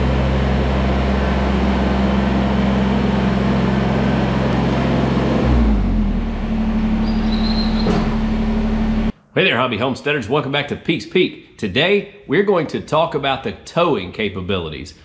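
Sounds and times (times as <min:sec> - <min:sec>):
tractor diesel engine running: 0:00.0 - 0:09.1.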